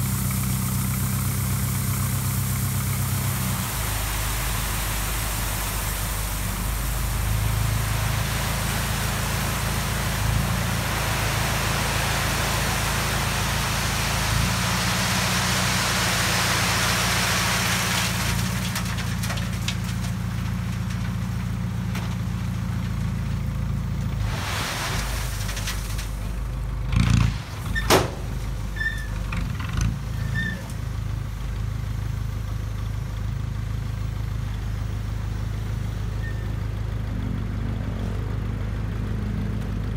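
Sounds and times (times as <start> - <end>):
gravel pouring and rattling: 0.0 - 31.2
diesel engine running: 0.0 - 39.9.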